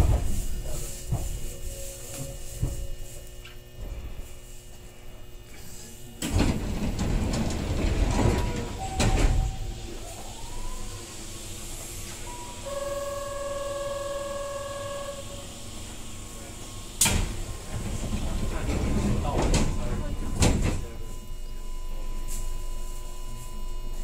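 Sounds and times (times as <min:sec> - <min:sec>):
electric train motor whine: 0:06.0 - 0:22.6.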